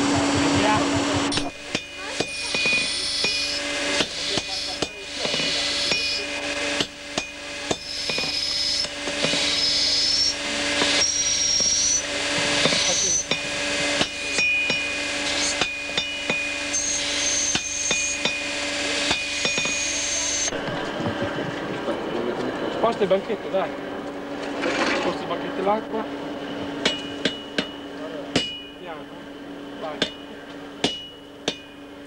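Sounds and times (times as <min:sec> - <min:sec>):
hammer striking metal on anvil: 0:00.1 - 0:10.2, 0:10.8 - 0:20.6, 0:26.8 - 0:28.8, 0:30.0 - 0:31.9.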